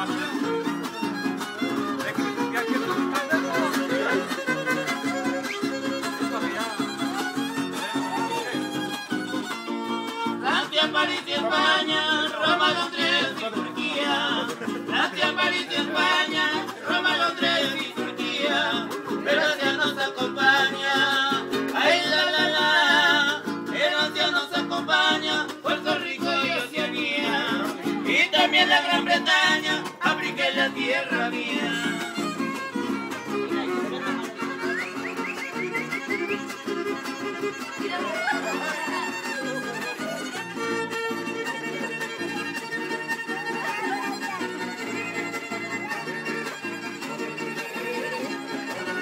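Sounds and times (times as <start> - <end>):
strummed guitars: 0.0 - 49.0
violin melody: 0.0 - 49.0
person singing: 10.1 - 32.5.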